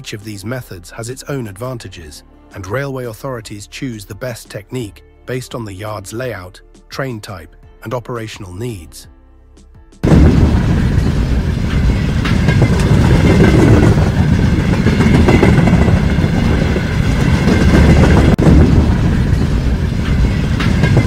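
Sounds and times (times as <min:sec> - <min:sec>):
diesel locomotive engine: 0:10.0 - 0:21.0
train wheels on rails: 0:10.1 - 0:21.0.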